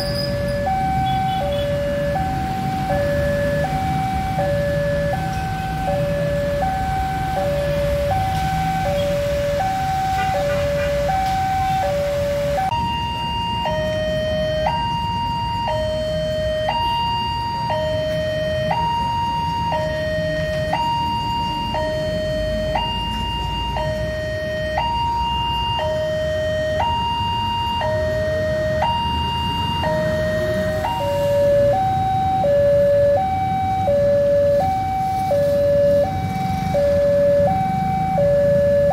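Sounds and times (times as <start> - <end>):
level crossing two-tone alarm: 0.0 - 38.9
road traffic rumble: 0.0 - 38.9.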